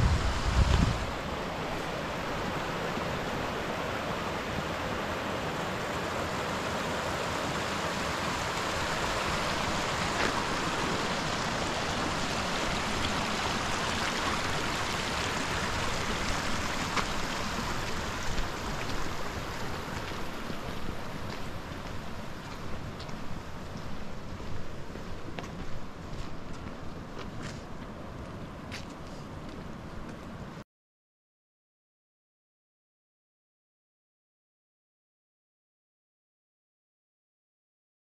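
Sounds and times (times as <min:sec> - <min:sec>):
creek running over rocks: 0:00.0 - 0:28.8.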